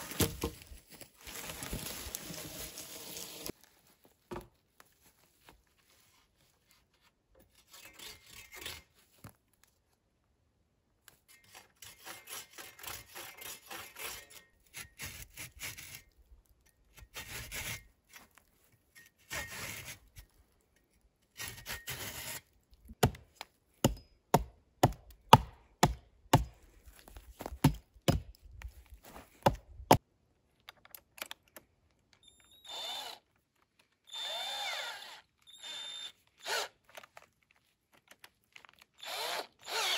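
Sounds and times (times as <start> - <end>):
hand saw cutting wood: 7.4 - 9.0, 11.3 - 16.1, 16.9 - 18.2, 19.2 - 20.2, 21.4 - 22.5, 34.1 - 36.8, 39.0 - 39.9
cordless drill whirring: 32.5 - 33.2, 34.1 - 36.8, 39.0 - 39.9.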